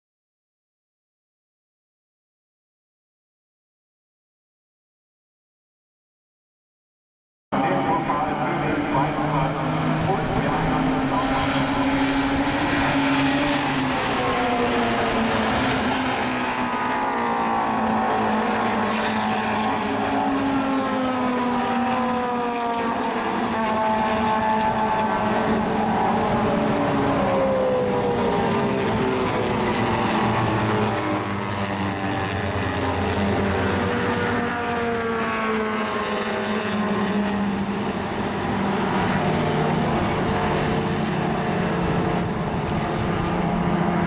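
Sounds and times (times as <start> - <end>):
race car engines passing: 7.6 - 44.0.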